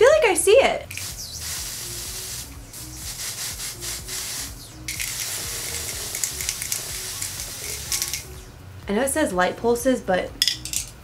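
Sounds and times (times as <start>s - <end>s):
faint background music: 0.0s - 11.0s
aerosol can spraying: 0.9s - 8.4s.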